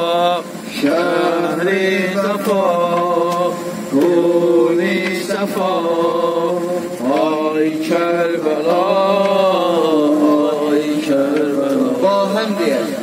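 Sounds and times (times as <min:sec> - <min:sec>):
man chanting into a microphone: 0:04.2 - 0:13.0.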